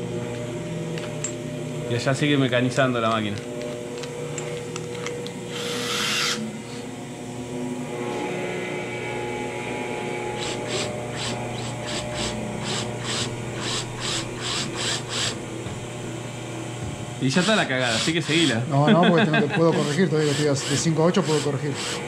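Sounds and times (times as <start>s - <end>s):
cordless drill boring: 4.8s - 6.5s, 10.3s - 15.6s, 17.2s - 18.7s, 19.6s - 22.0s
drill bit rasping through fibreglass: 5.5s - 6.5s, 10.4s - 15.4s, 17.2s - 18.6s, 19.8s - 22.0s.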